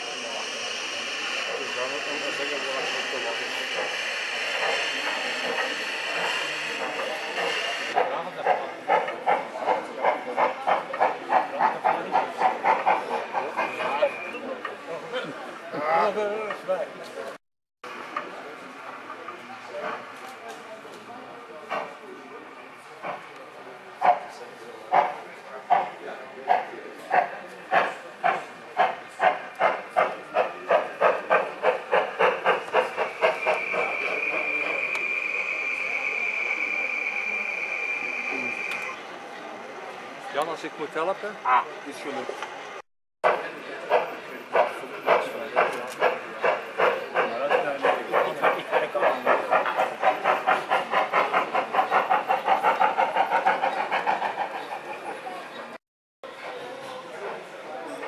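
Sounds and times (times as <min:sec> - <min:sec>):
steady steam hiss: 0:00.0 - 0:08.0
model locomotive chuffing: 0:00.0 - 0:14.8, 0:18.0 - 0:58.0.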